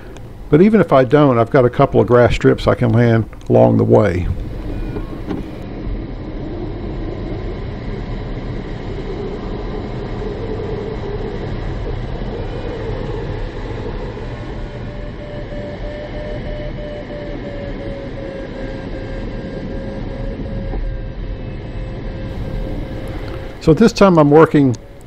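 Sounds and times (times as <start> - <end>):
steady high tone: 0.0 - 5.6, 22.3 - 25.0
air rushing past cockpit: 0.0 - 14.8, 22.3 - 25.0.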